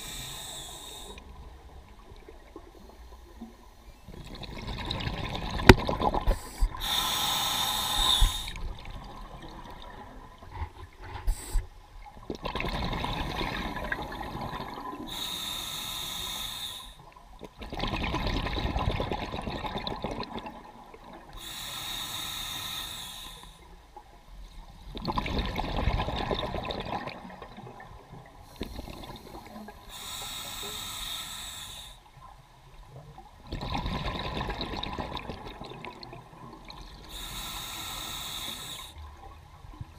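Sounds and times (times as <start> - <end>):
regulator hissing inhale: 0.0 - 1.3, 6.4 - 8.7, 15.0 - 17.0, 21.4 - 23.7, 28.5 - 32.1, 37.0 - 39.0
exhaled bubbles rushing: 4.1 - 6.8, 12.2 - 15.1, 17.6 - 21.3, 24.9 - 28.1, 33.4 - 37.0.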